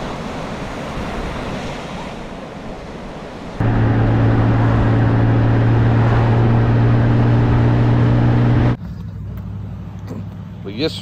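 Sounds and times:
wind and road noise: 0.0s - 11.0s
motorcycle engine drone: 3.6s - 8.8s.

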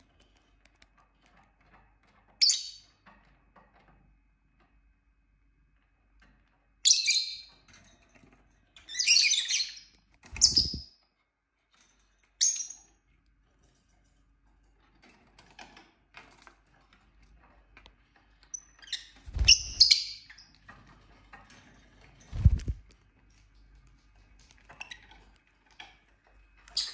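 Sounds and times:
lovebirds chirping: 9.0s - 10.9s, 18.6s - 20.5s.

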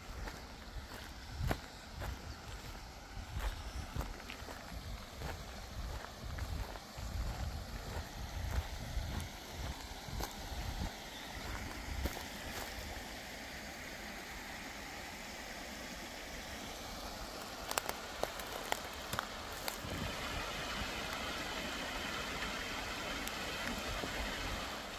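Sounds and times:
stream trickling over rocks: 0.0s - 24.9s
wind rumble on microphone: 0.1s - 12.2s.

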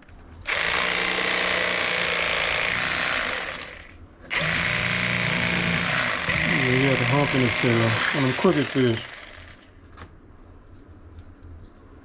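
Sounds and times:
electric fillet knife running: 0.5s - 9.6s.

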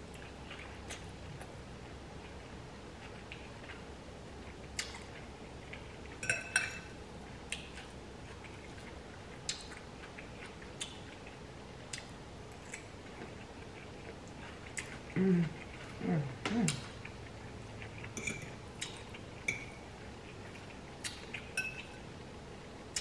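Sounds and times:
fork clinking on glass bowl: 6.2s - 6.9s, 18.2s - 18.6s, 19.4s - 19.8s, 21.6s - 22.0s.

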